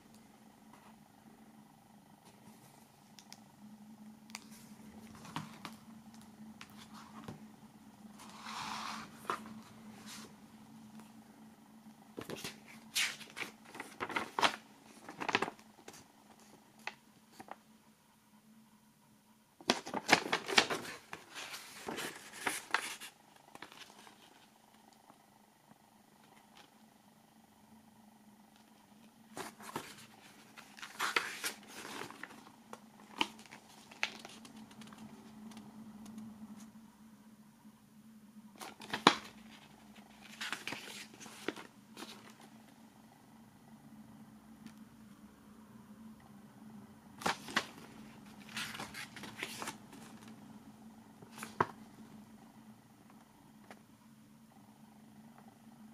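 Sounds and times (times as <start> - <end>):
faint low hum: 0.0 - 55.9
pages turning: 4.3 - 7.4, 8.1 - 10.4, 12.2 - 17.6, 19.6 - 24.6, 29.3 - 35.7, 38.6 - 42.5, 47.2 - 50.4, 51.2 - 51.9
paper crackles and taps: 4.3 - 7.4, 12.2 - 17.6, 19.6 - 24.3, 29.4 - 36.3, 38.6 - 39.4, 47.2 - 50.4
paper sliding rustle: 6.6 - 7.4, 8.1 - 10.4, 12.2 - 17.6, 19.7 - 24.6, 29.3 - 35.6, 38.6 - 42.5, 47.2 - 50.4.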